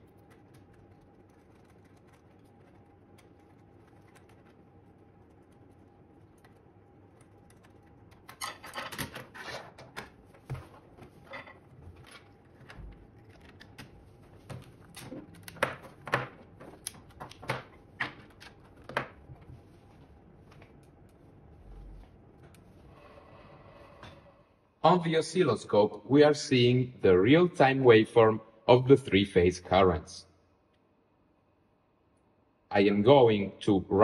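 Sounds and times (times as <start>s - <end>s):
cable connectors clicking and rustling: 5.2s - 19.6s.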